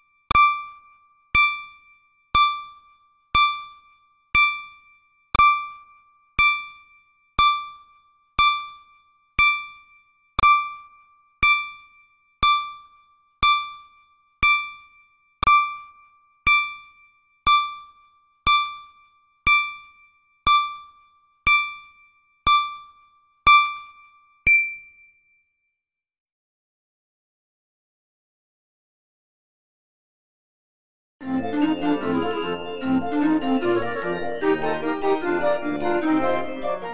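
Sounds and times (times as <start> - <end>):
countdown timer ding: 24.5 - 25.0, 31.2 - 36.9
final higher ringing tone: 24.5 - 25.1.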